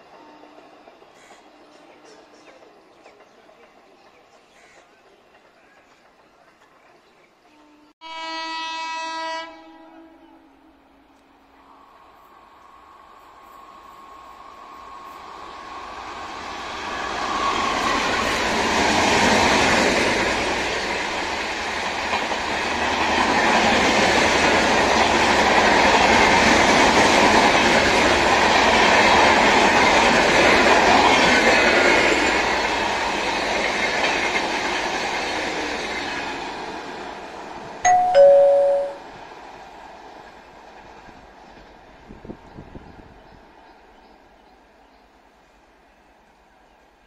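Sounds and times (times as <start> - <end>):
two-note descending chime: 37.9 - 39.0.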